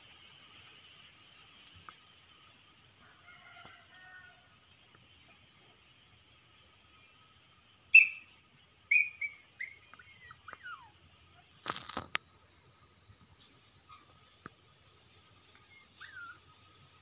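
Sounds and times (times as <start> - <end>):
high-pitched animal cries: 8.9 - 11.0
brief rustle: 11.6 - 12.4.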